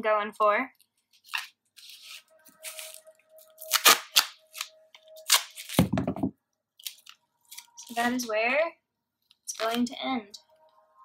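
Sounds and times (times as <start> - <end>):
duct tape crinkling: 0.8 - 5.9, 6.8 - 8.1.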